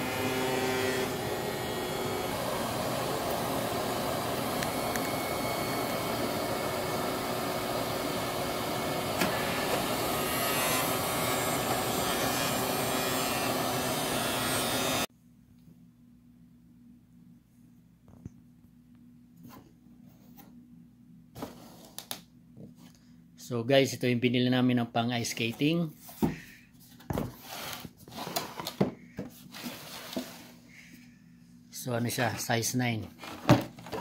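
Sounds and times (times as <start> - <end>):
skate sharpener grinding: 9.0 - 15.0.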